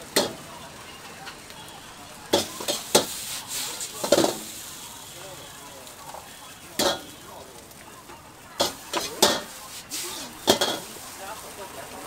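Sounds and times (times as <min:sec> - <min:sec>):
low sizzle: 0:00.0 - 0:12.0
metal ladle clanking on wok: 0:08.6 - 0:09.5, 0:10.4 - 0:10.9.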